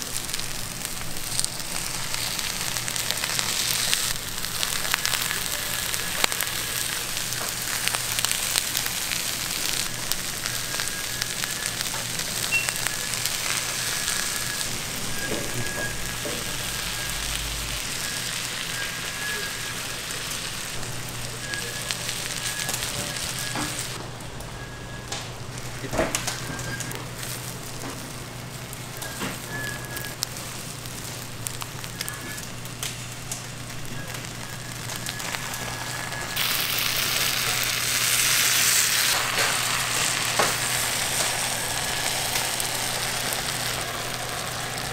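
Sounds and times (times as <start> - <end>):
chicken sizzling and popping: 0.0 - 44.9
faint high squeak: 12.5 - 13.1.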